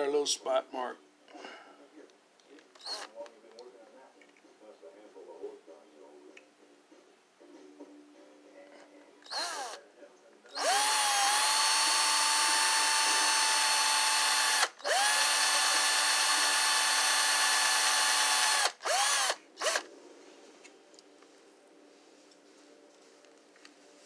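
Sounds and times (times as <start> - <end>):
cordless drill whining: 2.8 - 3.1, 9.2 - 9.8, 10.6 - 19.9.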